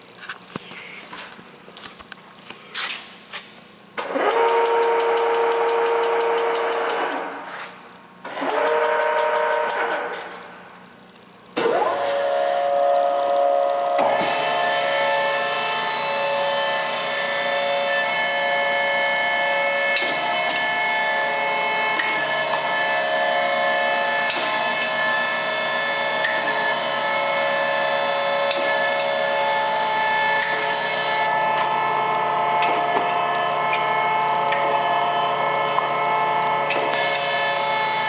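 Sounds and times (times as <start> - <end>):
surface grinder whining: 11.6 - 38.0.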